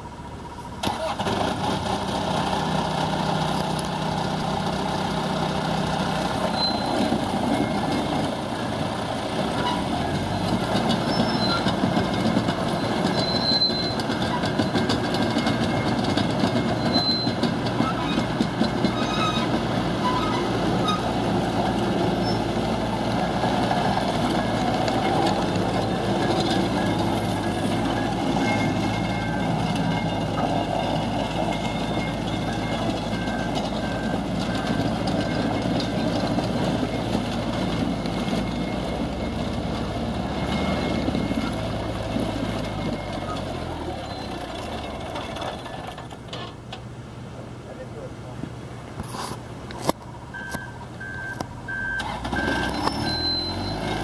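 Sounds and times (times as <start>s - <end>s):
loader engine running: 0.0s - 54.0s
tracks rattling: 0.8s - 46.9s
brief squeaks: 6.4s - 7.1s, 9.6s - 11.8s, 12.7s - 15.0s, 16.6s - 18.3s, 51.9s - 54.0s.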